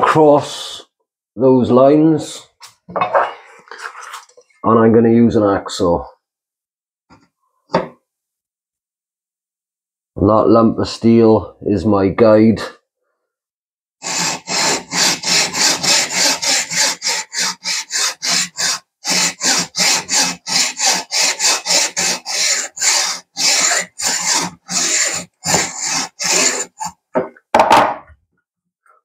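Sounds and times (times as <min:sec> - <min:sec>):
hacksaw rasping strokes: 0:14.0 - 0:27.0.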